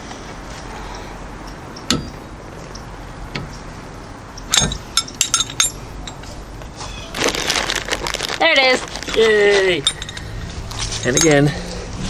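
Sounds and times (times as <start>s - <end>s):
socket wrench clinking: 4.4s - 6.3s, 9.8s - 10.4s.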